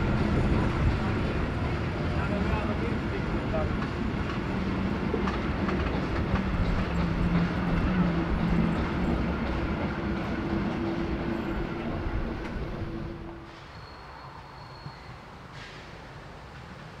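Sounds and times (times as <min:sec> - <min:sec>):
train wheels clacking over joints: 0:03.5 - 0:11.1.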